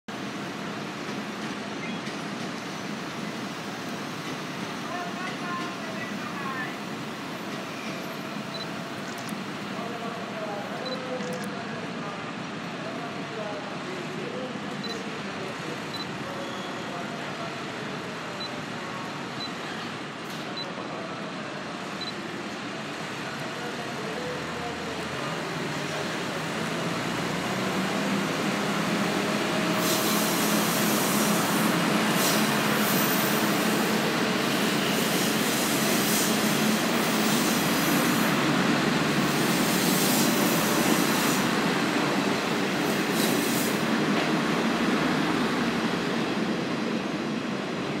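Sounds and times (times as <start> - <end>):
train wheels on rails: 0.1 - 10.3, 21.8 - 48.0
diesel train engines: 0.1 - 48.0.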